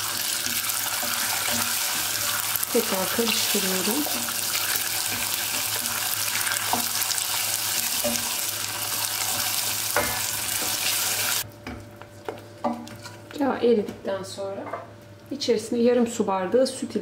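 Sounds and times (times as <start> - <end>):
caramel bubbling and sizzling in a pot: 0.0 - 13.2.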